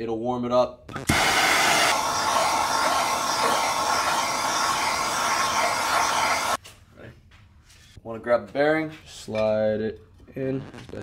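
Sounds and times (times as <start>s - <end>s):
gas torch hissing: 1.0s - 6.6s.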